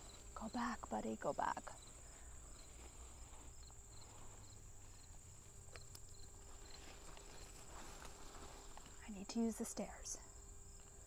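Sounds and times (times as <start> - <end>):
insects trilling: 0.0 - 11.0
leaves rustling as handled: 2.7 - 9.7.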